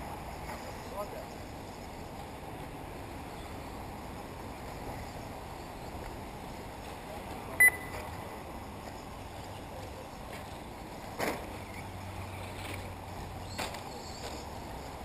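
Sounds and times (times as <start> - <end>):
outdoor background rush: 0.0 - 15.0
short high electronic beep: 7.6 - 8.0.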